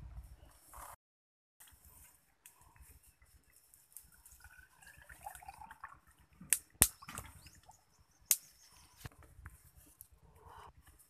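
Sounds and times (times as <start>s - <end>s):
liquid pouring and gurgling: 4.1s - 7.8s.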